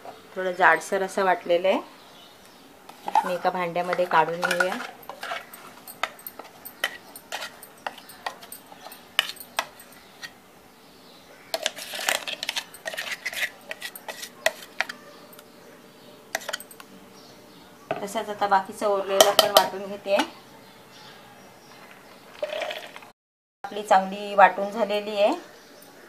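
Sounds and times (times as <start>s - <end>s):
spoon scraping metal jar: 2.9s - 10.4s, 11.5s - 15.5s, 16.3s - 16.8s.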